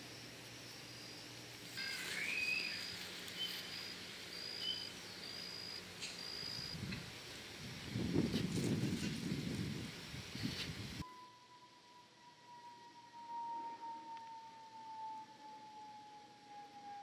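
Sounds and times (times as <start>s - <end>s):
faint steady hum: 0.0s - 17.0s
high thin whistled bird notes: 1.8s - 5.0s
bird rising chirp: 1.8s - 5.3s.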